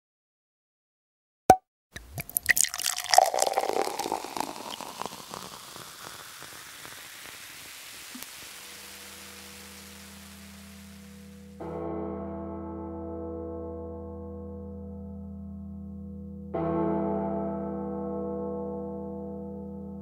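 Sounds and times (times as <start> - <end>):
water splashing and dripping: 2.0 - 11.3.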